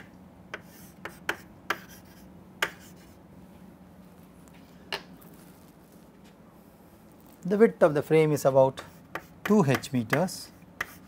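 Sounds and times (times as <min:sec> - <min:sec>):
chalk tapping on chalkboard: 0:00.5 - 0:03.1, 0:08.8 - 0:11.0.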